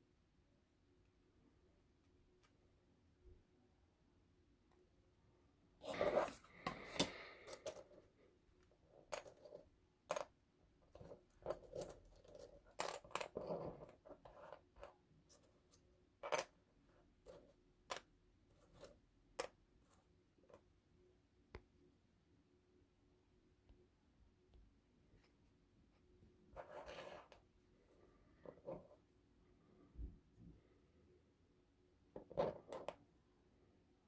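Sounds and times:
wooden parts scraping on mat: 5.8 - 8.0, 26.6 - 27.4.

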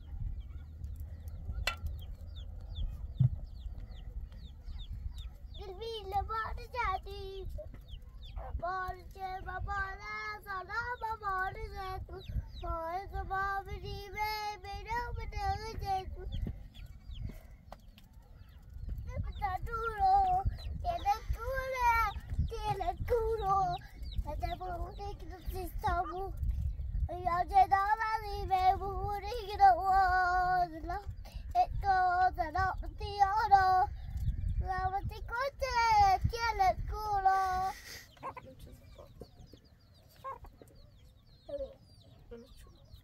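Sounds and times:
child singing: 5.5 - 16.6, 18.8 - 38.4.

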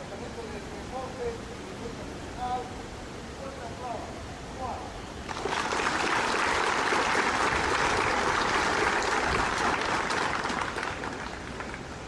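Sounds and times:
crowd applauding: 5.3 - 12.0.

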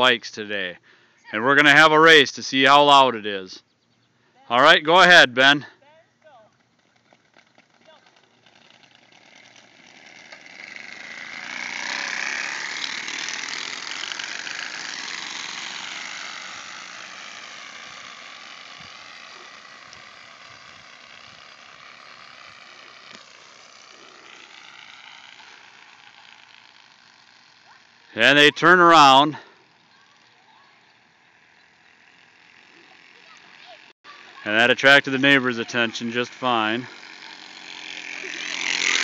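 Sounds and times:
cards rattling in bicycle spokes: 6.2 - 28.2, 35.3 - 39.0.

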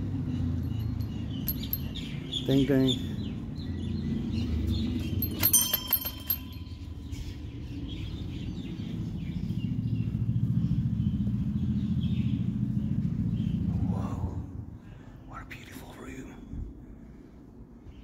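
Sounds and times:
small brass bell ringing: 0.6 - 2.2, 5.2 - 7.1.

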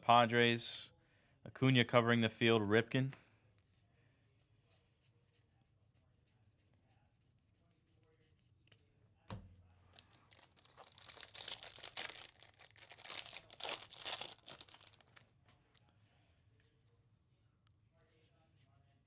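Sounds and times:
foil wrapper tearing and crinkling: 10.0 - 15.3.

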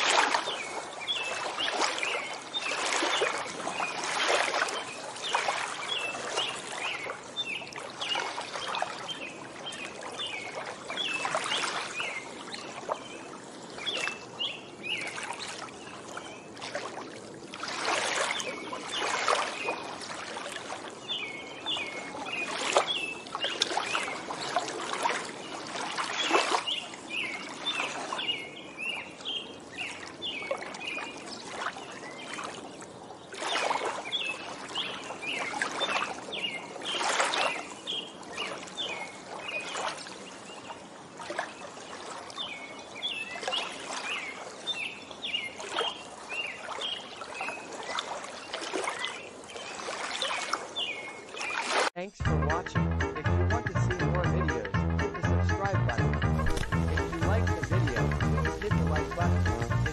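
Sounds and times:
small waves lapping: 0.0 - 52.2, 56.4 - 59.9
songbirds chirping: 0.1 - 59.9.

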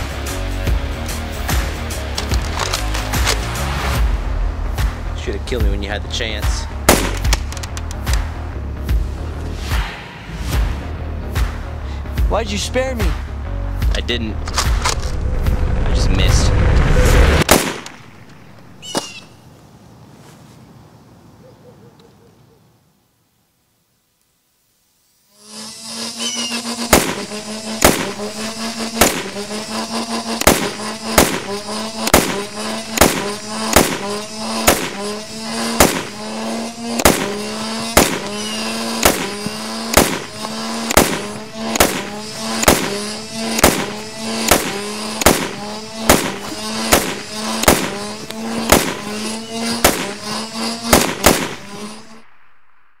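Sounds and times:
steady low hum: 0.0 - 18.8, 24.9 - 53.0
short rising tone: 6.6 - 11.8, 14.3 - 18.8, 25.4 - 53.0
gunshot sound effects: 6.9 - 7.5, 16.6 - 17.9, 26.9 - 28.3, 29.0 - 29.4, 30.4 - 36.2, 37.0 - 52.9.

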